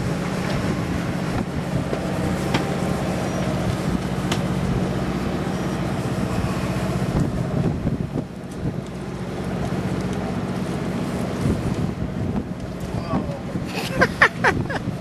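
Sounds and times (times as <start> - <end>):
boat engine humming: 0.0 - 15.0
wind and sea noise: 0.0 - 15.0.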